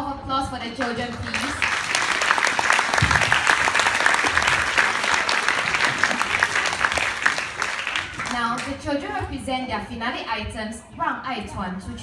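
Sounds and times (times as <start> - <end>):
audience applause: 1.2 - 8.7.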